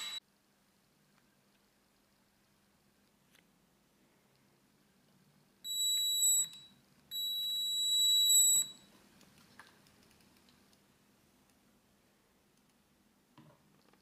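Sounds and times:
electric motor whine: 0.0s - 0.2s
click: 12.6s - 12.8s.

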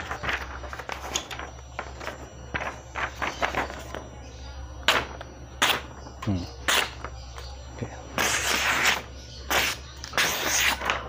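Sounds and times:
knife slicing through paper: 8.2s - 11.0s.

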